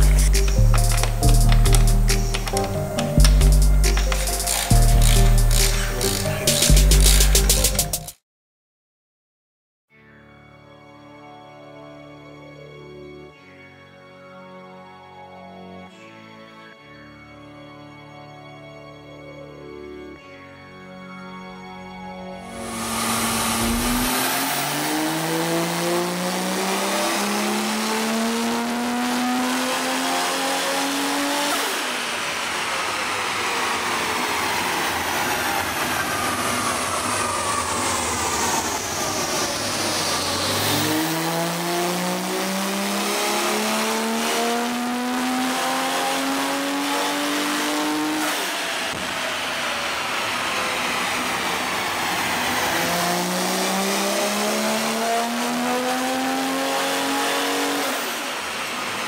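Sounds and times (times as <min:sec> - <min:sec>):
car engine revving at full throttle: 0:22.5 - 0:59.0.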